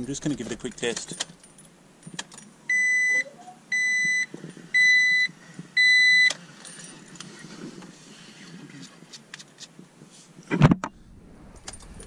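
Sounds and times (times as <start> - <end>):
car dashboard warning chime beeping: 2.7 - 6.3.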